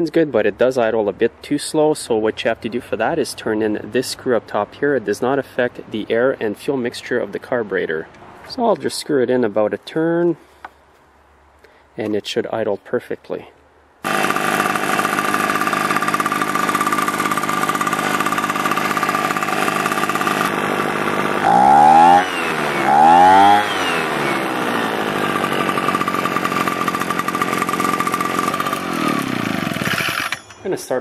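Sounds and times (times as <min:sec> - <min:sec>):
leaf blower engine revving: 0:14.0 - 0:30.4
leaf blower engine idling: 0:14.0 - 0:30.9.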